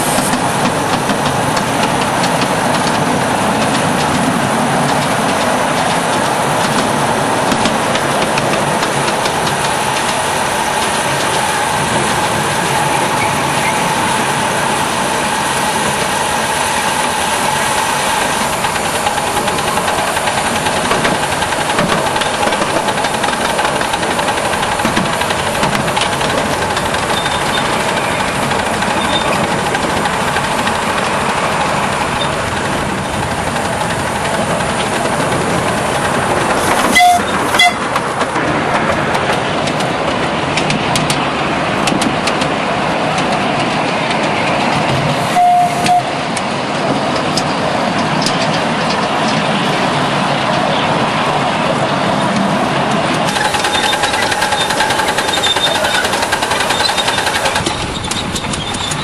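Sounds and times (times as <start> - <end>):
steam hiss: 0.0 - 38.2, 53.2 - 59.0
rapid mechanical clatter: 0.2 - 45.2, 52.3 - 59.0.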